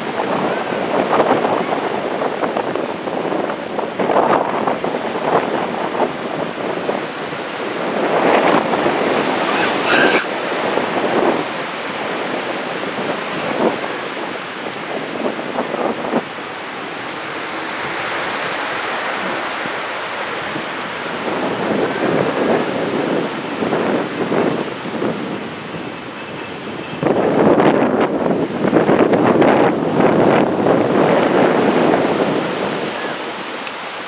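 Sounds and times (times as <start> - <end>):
small surf breaking on sand: 0.0 - 25.2
wind buffeting microphone: 0.0 - 34.0.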